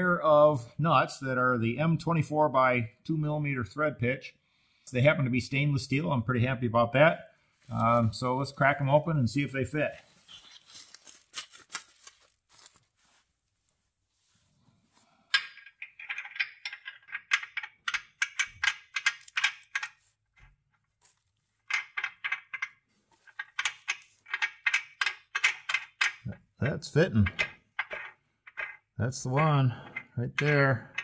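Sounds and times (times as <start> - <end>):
package tearing with crinkle: 10.4 - 12.9.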